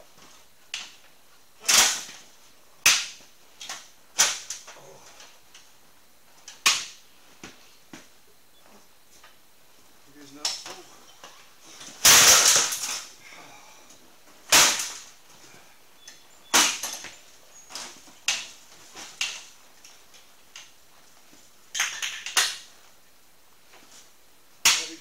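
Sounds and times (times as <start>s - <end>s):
metal clattering crash: 12.0s - 13.1s.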